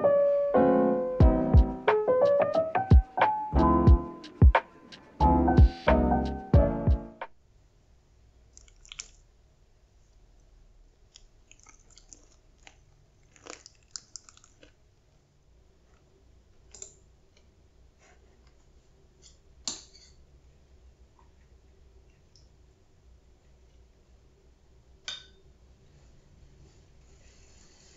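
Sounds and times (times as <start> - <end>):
chewing: 8.5 - 9.2, 11.1 - 14.8.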